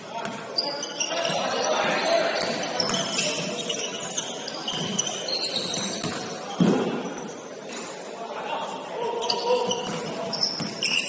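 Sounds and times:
echoing hall noise: 0:00.0 - 0:11.0
shoes squeaking on gym floor: 0:00.5 - 0:07.5, 0:09.2 - 0:11.0.

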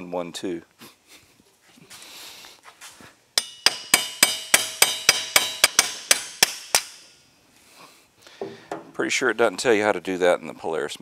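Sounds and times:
hammer tapping on metal: 0:03.4 - 0:07.1, 0:08.4 - 0:09.0.

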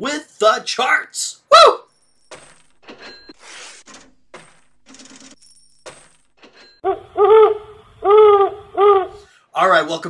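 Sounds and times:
coins dropping and clinking: 0:01.9 - 0:06.8.

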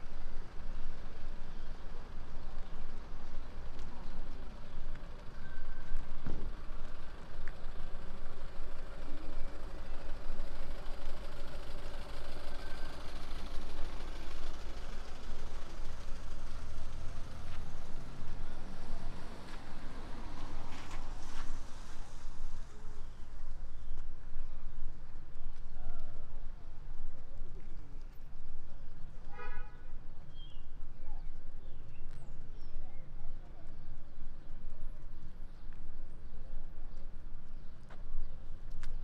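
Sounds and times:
vehicle engine idling: 0:00.0 - 0:29.4
faint held engine tone: 0:00.0 - 0:39.0.

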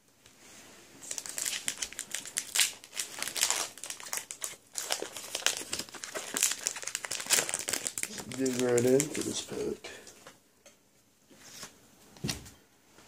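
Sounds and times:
plastic wrapper crinkling: 0:01.0 - 0:10.1.

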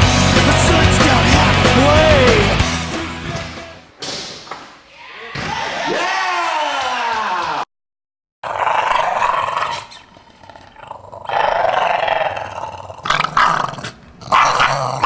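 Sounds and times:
dog growling: 0:08.4 - 0:15.0.

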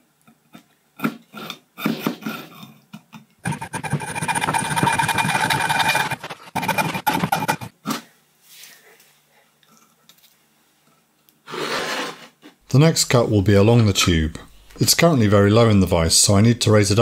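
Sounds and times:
hacksaw cutting metal pipe: 0:03.4 - 0:07.7.

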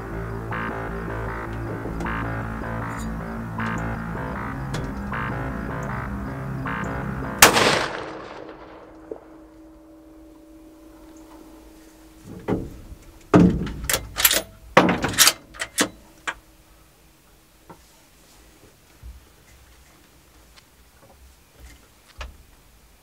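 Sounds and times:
rifle shot echoing: 0:07.4 - 0:09.8.

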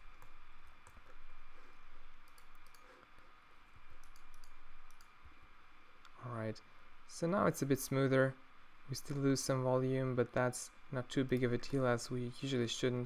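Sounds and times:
faint background hiss: 0:00.0 - 0:13.0
mouse and keyboard clicks: 0:02.2 - 0:03.2, 0:04.0 - 0:05.1.

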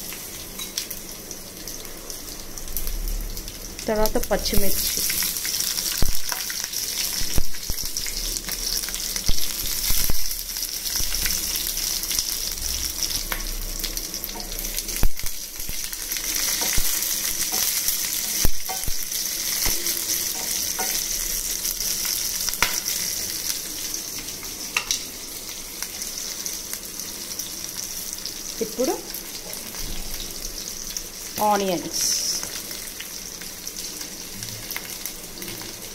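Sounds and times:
spices sizzling in hot oil: 0:00.0 - 0:35.9.

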